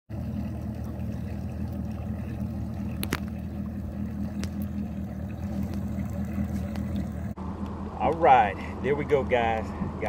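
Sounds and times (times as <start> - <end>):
outboard motor idling: 0.1 - 10.0.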